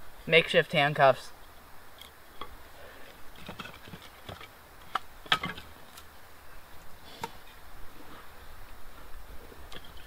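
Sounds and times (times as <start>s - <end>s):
firewood knocking: 3.4s - 5.7s.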